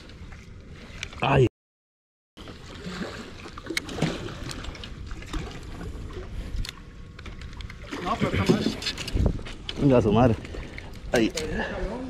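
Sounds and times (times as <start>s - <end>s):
water sloshing: 2.4s - 11.6s.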